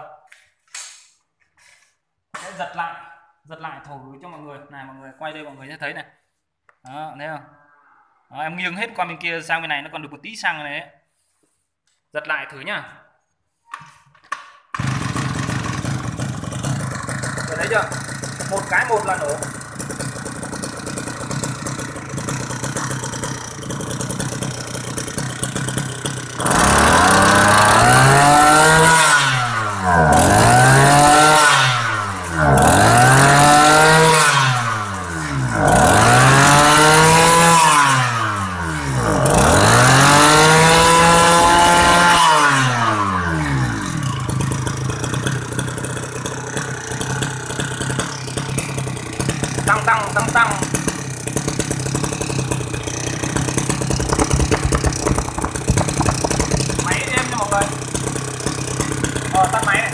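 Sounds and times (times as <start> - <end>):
brush cutter engine revving: 14.8 - 59.9.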